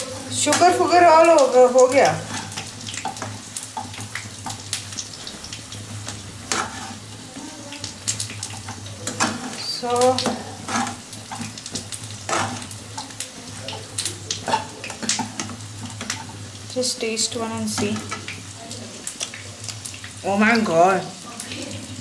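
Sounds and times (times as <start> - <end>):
chicken sizzling in a pan: 0.0 - 22.0
utensils clicking and scraping pan: 0.3 - 4.6, 6.0 - 7.2, 8.0 - 13.2, 13.8 - 16.4, 17.7 - 18.4.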